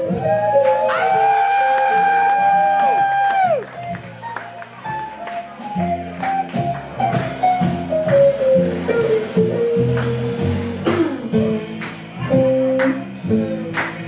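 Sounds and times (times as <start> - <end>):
bass line: 0.0 - 14.0
drum kit hits: 0.0 - 14.0
sliding melody line: 3.6 - 13.8.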